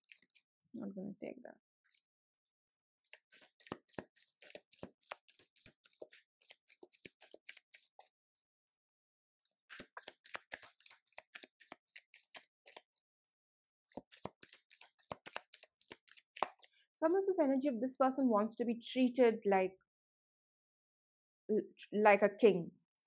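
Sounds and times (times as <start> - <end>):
cards being shuffled by hand: 0.0 - 0.5, 3.0 - 8.1, 9.6 - 13.0, 13.9 - 16.7.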